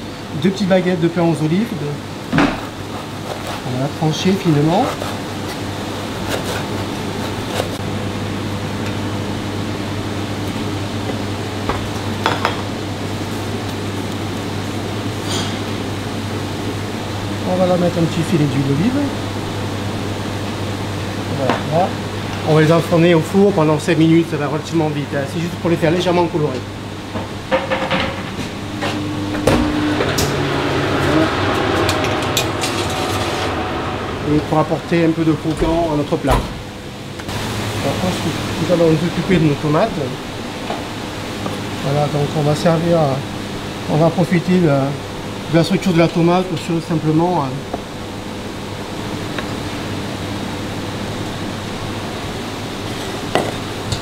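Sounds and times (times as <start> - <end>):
ventilation hum: 0.0 - 54.0
knife slicing bread: 6.2 - 7.8
metal tray sliding onto oven rack: 29.4 - 34.4.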